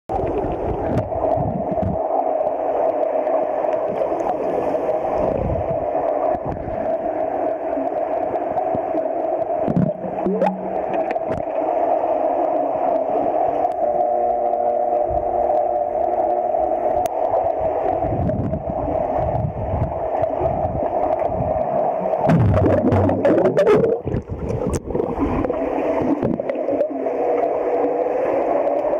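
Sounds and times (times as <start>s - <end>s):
muffled underwater hum: 0.1s - 28.9s
water gurgling: 0.1s - 28.9s
even tones: 6.1s - 19.3s.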